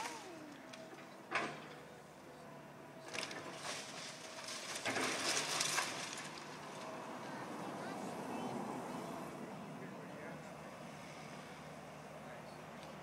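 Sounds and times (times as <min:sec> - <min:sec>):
excavator low hum: 0:00.0 - 0:13.0
timber crunching and cracking: 0:03.1 - 0:06.9.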